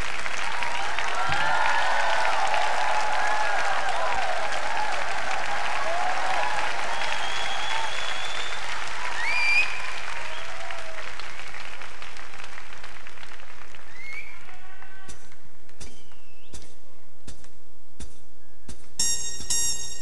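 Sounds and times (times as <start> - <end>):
cheers and whistles: 0.0 - 11.8, 13.8 - 15.1
audience applauding: 0.0 - 15.0.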